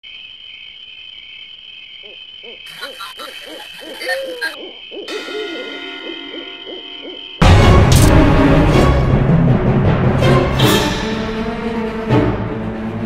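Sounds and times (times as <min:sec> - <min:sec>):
crickets chirping: 0:00.0 - 0:07.4
owl hooting: 0:02.0 - 0:07.4.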